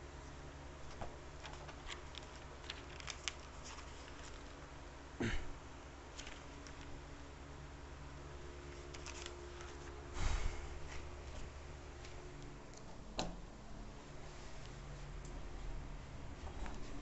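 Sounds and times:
steady low hum: 0.0s - 17.0s
handling clicks and rustles: 0.8s - 4.8s.

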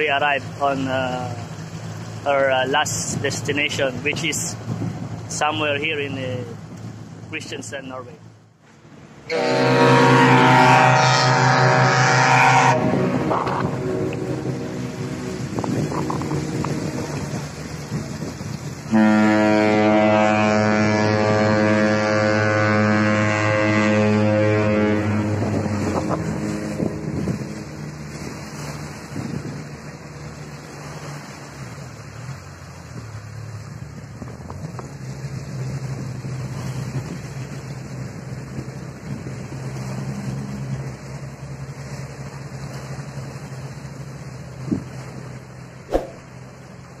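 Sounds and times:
outboard motor running: 0.0s - 7.4s, 8.8s - 47.0s
water rushing past: 0.0s - 47.0s
wind noise: 4.0s - 5.3s, 12.7s - 19.0s, 25.2s - 29.9s, 44.6s - 45.0s
ship's horn blast: 9.2s - 17.5s, 18.8s - 28.8s.

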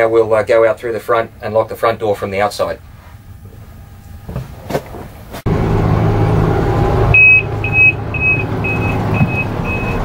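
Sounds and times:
diesel locomotive humming: 5.1s - 10.0s.

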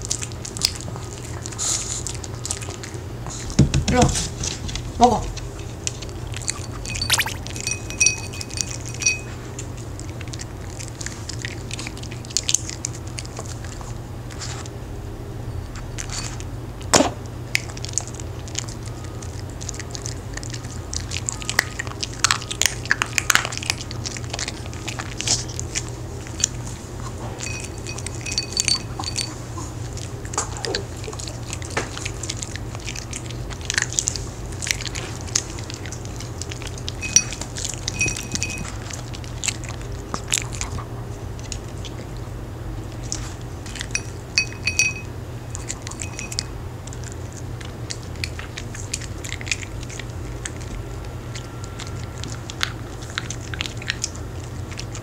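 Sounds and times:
dog crunching cookies: 0.0s - 3.5s, 7.6s - 14.7s, 16.0s - 55.0s
steady low hum: 6.3s - 9.5s, 42.3s - 47.6s.

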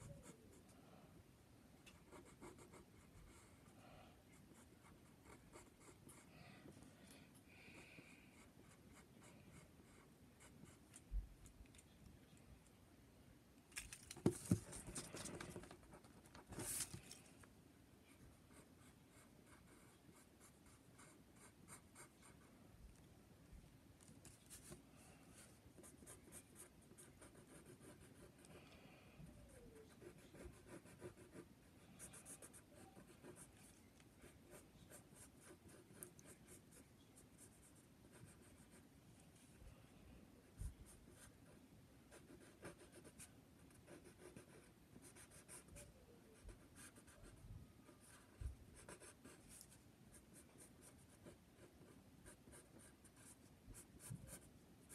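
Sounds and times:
pencil scratching on paper: 25.4s - 28.5s, 29.5s - 36.7s, 41.1s - 45.8s, 48.0s - 54.9s.

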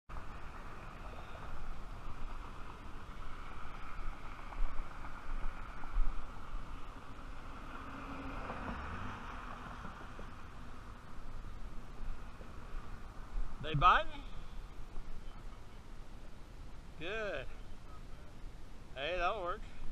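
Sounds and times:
road traffic hum: 0.1s - 19.9s.

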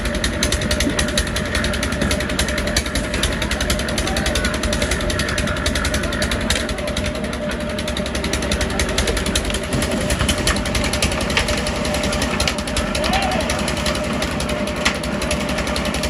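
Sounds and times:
concrete mixer engine running: 0.0s - 16.0s.

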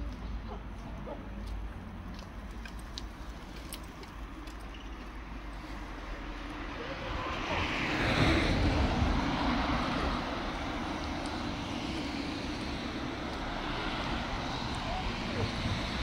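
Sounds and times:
vehicle passing: 5.5s - 16.0s.

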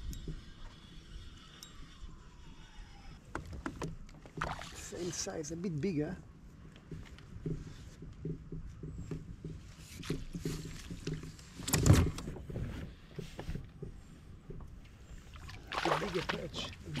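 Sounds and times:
fishing reel winding: 0.0s - 3.1s.

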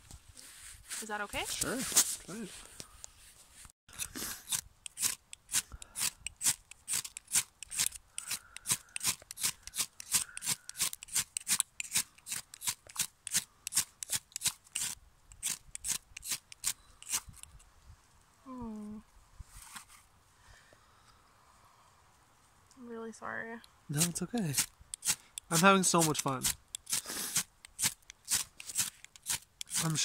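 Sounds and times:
ferro rod rasping scrapes: 3.9s - 17.5s, 23.9s - 30.0s.

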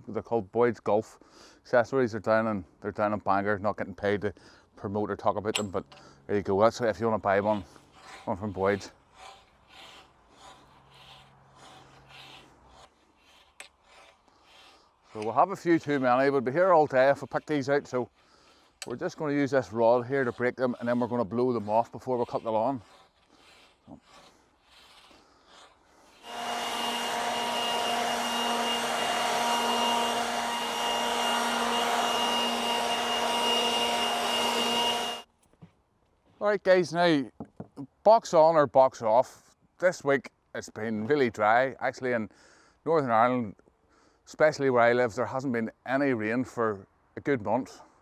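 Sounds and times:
leaf blower running: 26.1s - 35.3s.

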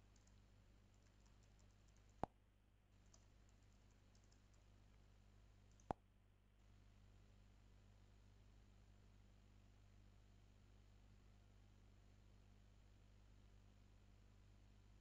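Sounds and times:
faint keyboard typing: 0.0s - 2.3s, 2.9s - 5.0s, 5.6s - 6.0s.

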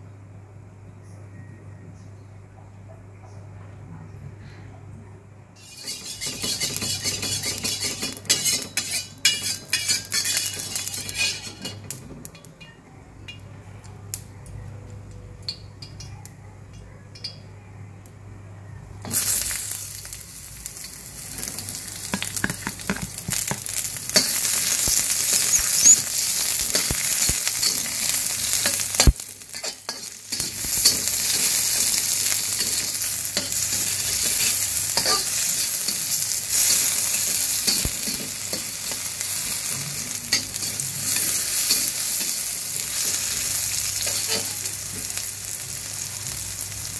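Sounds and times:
metal spatula scraping pan: 5.6s - 12.0s, 25.3s - 39.0s, 44.0s - 44.7s
vegetables sizzling in hot oil: 5.6s - 12.4s, 19.1s - 46.9s.

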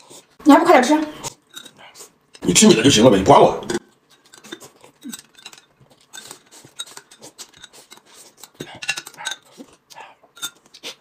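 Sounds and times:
chopsticks clinking on dishes: 4.1s - 9.6s
noodles slurped and chewed: 4.3s - 11.0s.

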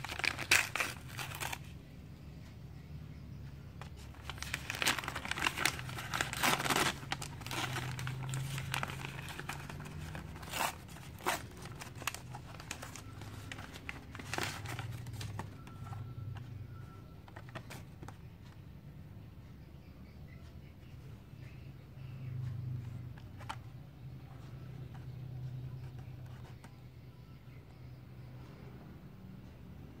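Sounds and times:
paper crinkling and tearing: 0.0s - 1.6s, 3.9s - 15.5s.

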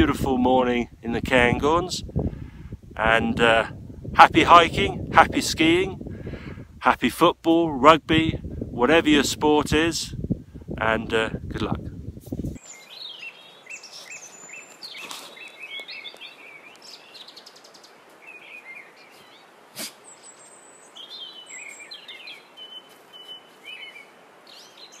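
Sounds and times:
wind hiss: 0.0s - 22.6s
songbirds chirping and trilling: 12.6s - 25.0s.

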